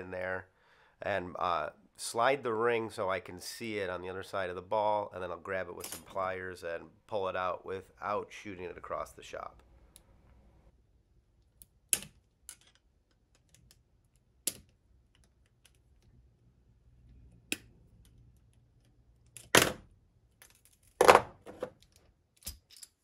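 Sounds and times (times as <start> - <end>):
pliers and metal parts clicking: 11.5 - 16.1, 20.3 - 21.0, 21.8 - 23.0.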